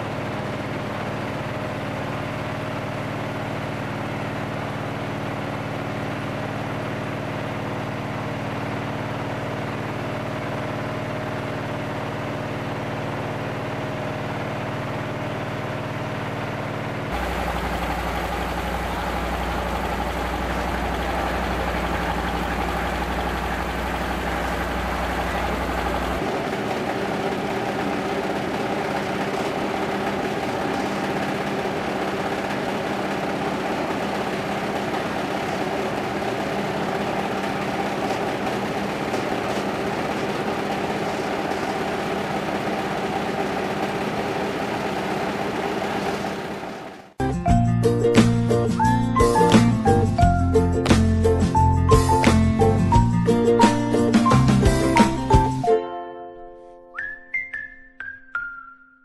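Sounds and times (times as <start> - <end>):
rice thresher diesel engine running: 0.0 - 47.2
deep hum: 17.2 - 26.2.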